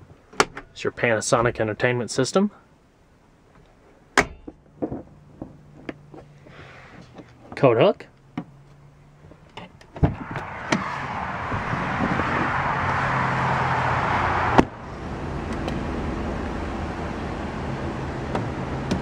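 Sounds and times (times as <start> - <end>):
low traffic hum: 0.0 - 19.0
car door latch clicks: 0.3 - 0.8
car door shutting: 9.6 - 10.9.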